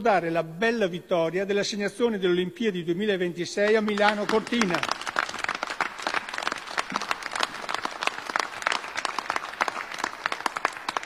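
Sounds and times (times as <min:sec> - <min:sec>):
crowd applauding: 0:03.6 - 0:11.0.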